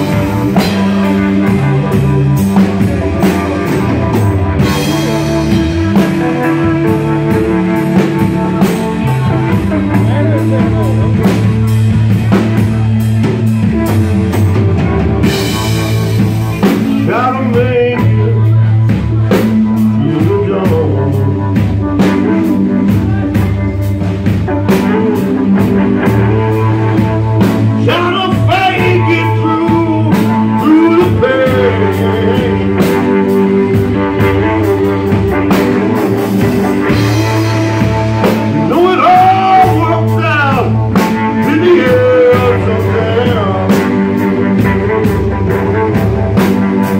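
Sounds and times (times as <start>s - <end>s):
rock band playing: 0.0s - 46.9s.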